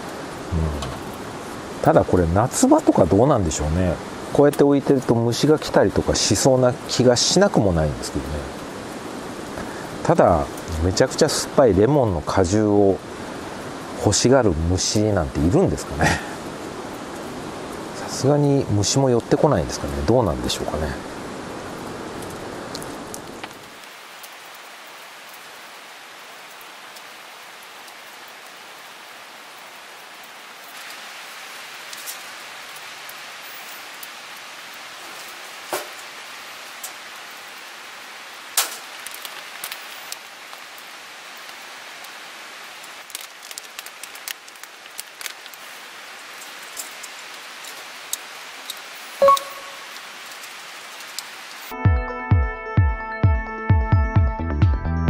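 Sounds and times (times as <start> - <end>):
rain hissing: 0.0 - 51.8.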